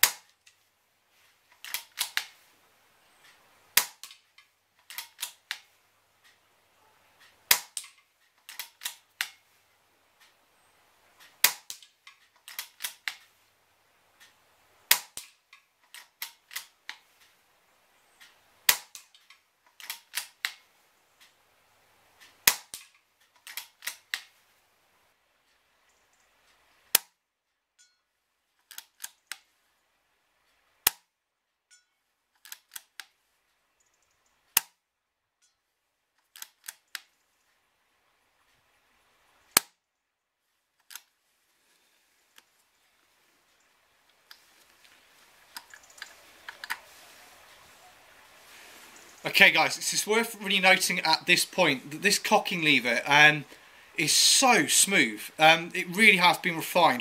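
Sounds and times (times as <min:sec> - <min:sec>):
rifle bolt clicks: 0:01.5 - 0:02.4, 0:03.8 - 0:05.7, 0:07.2 - 0:09.4, 0:11.4 - 0:13.3, 0:14.9 - 0:17.0, 0:18.2 - 0:20.6, 0:22.4 - 0:24.3, 0:28.6 - 0:29.5, 0:32.4 - 0:33.1, 0:36.2 - 0:37.1
air rifle shots: 0:07.5 - 0:07.9, 0:14.9 - 0:15.3, 0:22.4 - 0:22.8.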